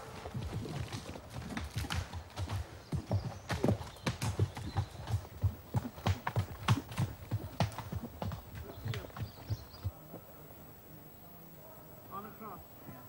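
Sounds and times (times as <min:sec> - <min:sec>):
horse hooves on dirt track: 0:00.0 - 0:10.2.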